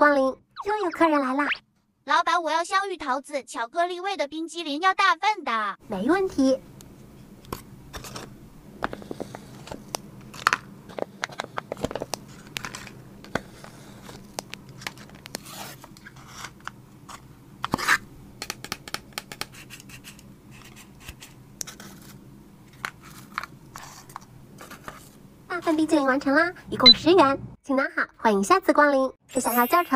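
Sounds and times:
paper craft pieces tapping and rustling: 8.8s - 17.8s.

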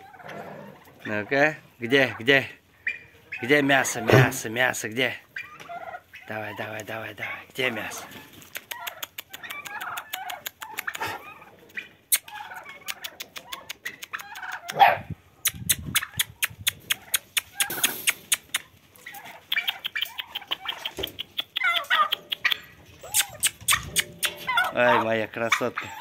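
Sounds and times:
puppies squeaking and whimpering: 5.3s - 6.3s, 8.6s - 26.0s
sharp clicks and taps: 8.5s - 11.0s, 15.4s - 18.7s, 19.4s - 24.5s
puppy yelp: 14.6s - 15.1s, 21.6s - 26.0s.

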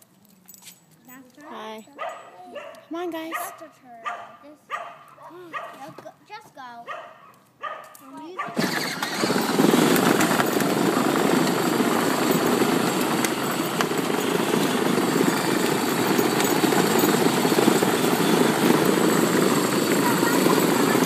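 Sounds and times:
toy truck rolling on pavement: 8.5s - 21.0s.

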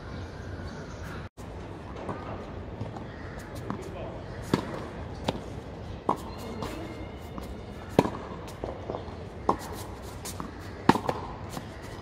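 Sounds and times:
tennis ball bouncing on court: 3.6s - 12.0s
tennis ball hit by racket: 4.4s - 6.7s, 7.4s - 11.7s.

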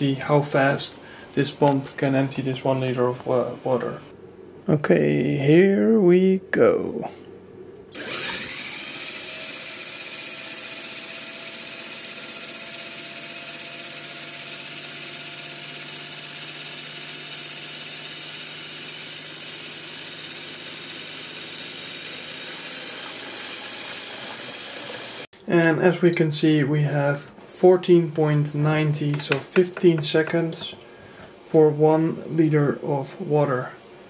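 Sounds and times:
pump motor whining: 7.9s - 25.3s
water pouring into metal sink: 22.2s - 25.2s.

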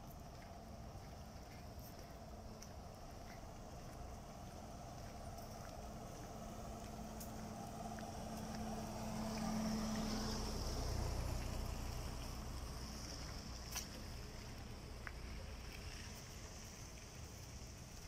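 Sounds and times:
light ticks: 5.0s - 10.1s, 11.4s - 18.0s.

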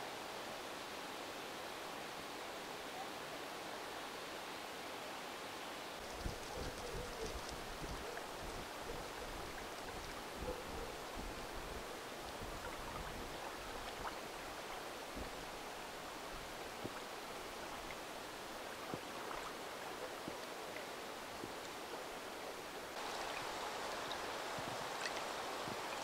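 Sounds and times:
wind hiss: 3.6s - 26.0s
wind rumble on microphone: 6.0s - 14.5s
gently moving water: 6.0s - 22.0s.

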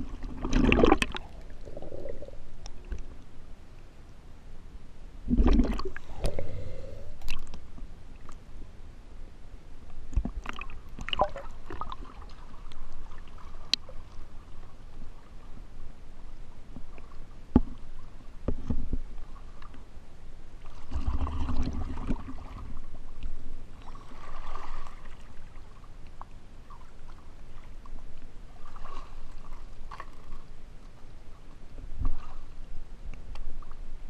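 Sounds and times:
water splashing and sloshing: 0.0s - 3.7s, 5.2s - 8.5s, 9.9s - 15.9s, 20.5s - 34.0s.

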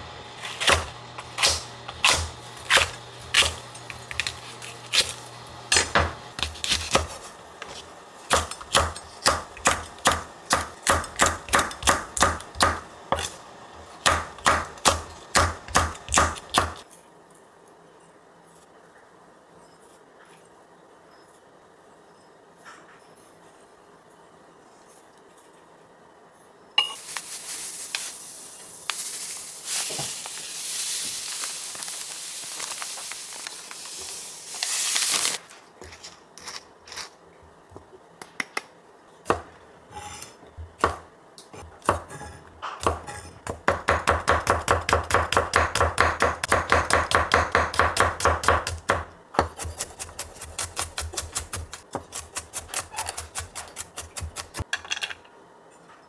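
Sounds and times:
knife chopping on wooden board: 41.6s - 54.6s.

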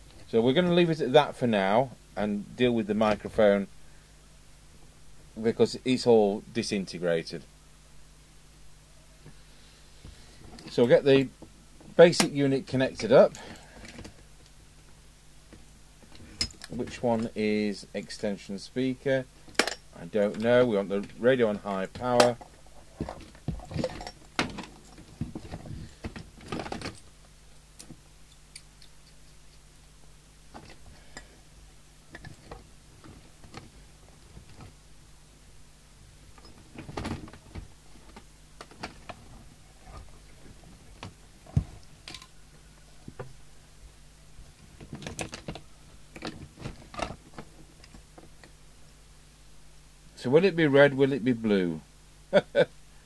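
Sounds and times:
faint steady hum: 0.0s - 53.0s
connectors clicking and rattling: 21.8s - 27.1s, 44.7s - 48.6s.

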